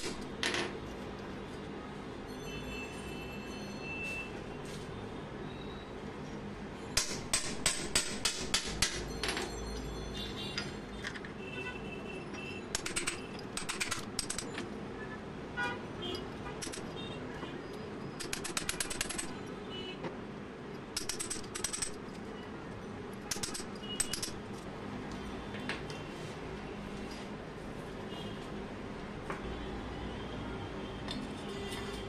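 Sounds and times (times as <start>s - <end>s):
hammer tapping steel chisel: 21.0s - 22.0s, 23.3s - 24.4s.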